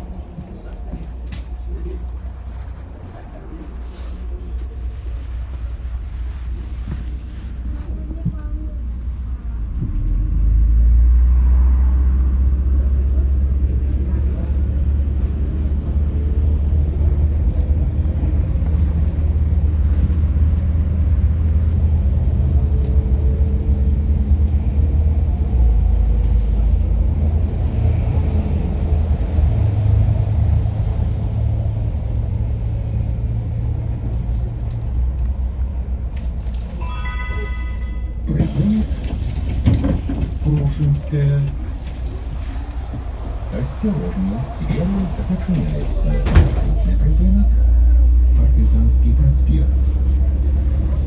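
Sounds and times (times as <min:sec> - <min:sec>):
bus diesel engine rumble: 0:00.0 - 0:51.0
short electronic chime: 0:36.8 - 0:38.3.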